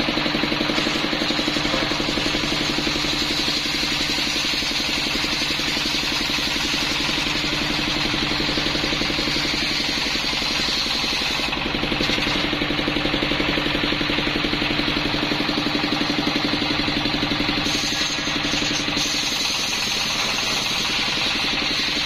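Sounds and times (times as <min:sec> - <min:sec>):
diesel engine knocking: 0:00.0 - 0:22.0
circular saw ripping wood: 0:00.6 - 0:12.5, 0:17.5 - 0:22.0.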